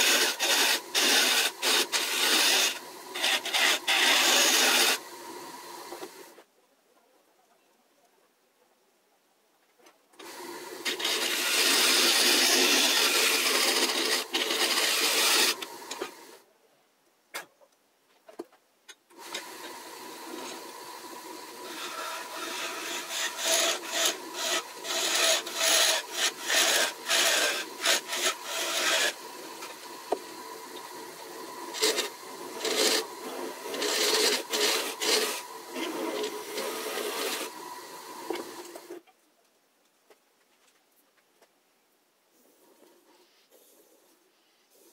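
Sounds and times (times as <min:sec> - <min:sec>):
lathe motor whine: 0:00.0 - 0:06.1, 0:10.2 - 0:16.3, 0:19.2 - 0:38.9
tool scraping wood on lathe: 0:00.0 - 0:06.2, 0:10.2 - 0:16.3, 0:19.2 - 0:39.0.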